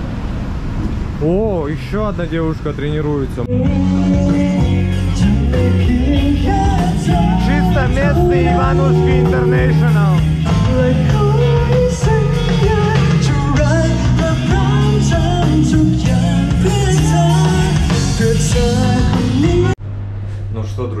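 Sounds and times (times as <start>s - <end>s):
live pop-rock band with vocals: 3.5s - 19.8s.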